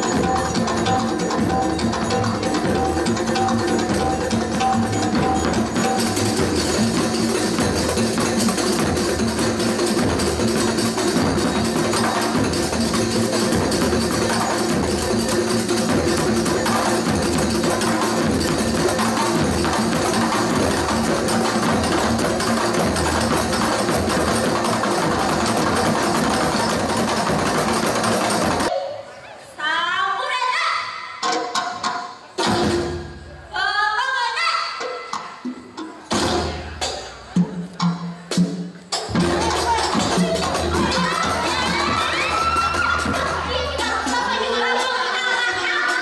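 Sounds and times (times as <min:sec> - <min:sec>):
dense percussion: 0:00.0 - 0:28.7
frame drums playing fast rhythm: 0:00.0 - 0:28.7, 0:34.9 - 0:46.0
live ensemble music: 0:00.0 - 0:46.0.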